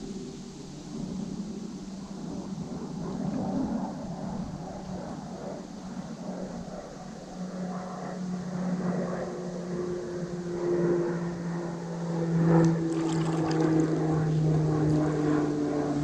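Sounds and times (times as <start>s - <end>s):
engine droning: 0.0s - 16.0s.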